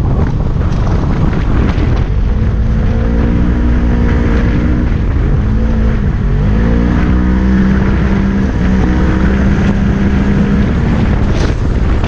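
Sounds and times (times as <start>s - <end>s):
utility vehicle engine running hard: 0.0s - 12.0s.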